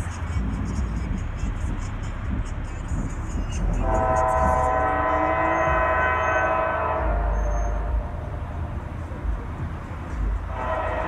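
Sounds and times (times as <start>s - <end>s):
locomotive air horn chord: 3.6s - 9.1s, 10.4s - 11.0s.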